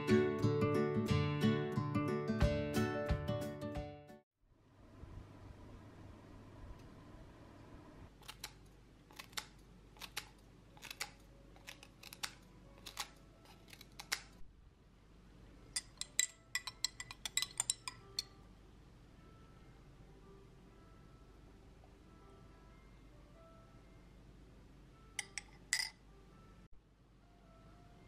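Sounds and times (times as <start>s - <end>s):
scissors snipping leaves: 8.2s - 14.4s.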